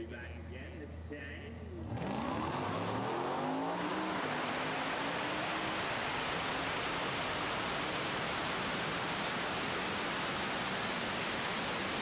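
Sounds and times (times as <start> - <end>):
steady hiss: 4.2 - 12.0.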